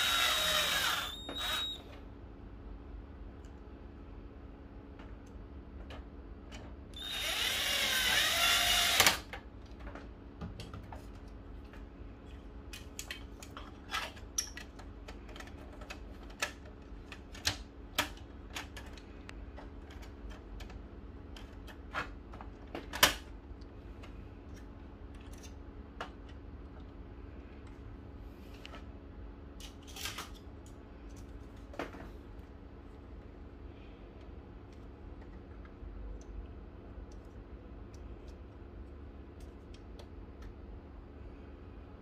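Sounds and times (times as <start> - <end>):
electric screwdriver whirring: 0.0 - 1.8, 7.0 - 9.3
plastic parts clicking and knocking: 12.7 - 23.3.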